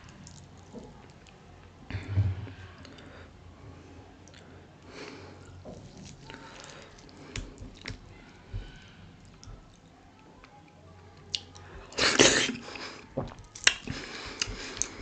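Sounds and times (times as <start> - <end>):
chewing: 0.0 - 1.7, 4.2 - 15.0
fingers squishing wet food: 4.2 - 15.0.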